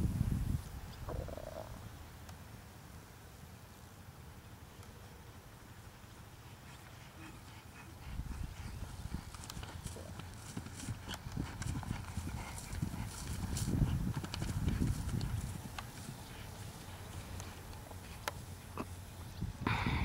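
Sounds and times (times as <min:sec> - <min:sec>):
horse hooves thudding on grass: 0:06.1 - 0:19.6.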